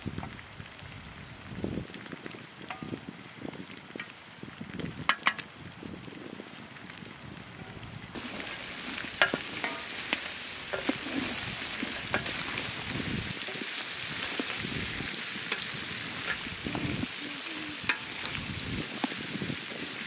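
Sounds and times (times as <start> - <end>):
meat sizzling in a pot: 0.0 - 20.0
wooden spoon scraping a pot: 8.2 - 18.4.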